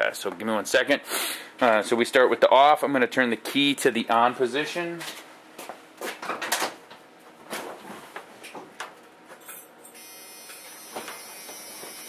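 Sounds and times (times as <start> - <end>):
seatbelt warning buzzer: 10.0 - 12.0.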